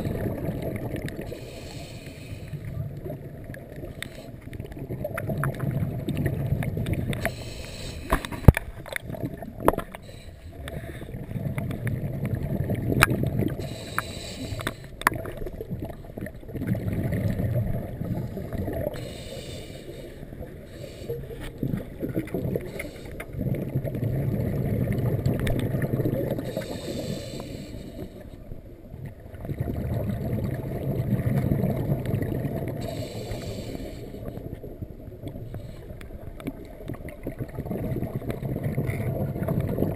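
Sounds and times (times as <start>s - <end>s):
gurgle of exhaled bubbles: 0.0s - 1.7s, 2.5s - 7.5s, 8.1s - 19.3s, 20.4s - 28.1s, 28.9s - 39.9s
regulator inhale hiss: 1.2s - 2.7s, 4.0s - 4.5s, 7.2s - 8.5s, 9.9s - 11.1s, 13.6s - 15.0s, 18.2s - 21.5s, 22.6s - 23.4s, 26.4s - 28.5s, 32.8s - 34.6s.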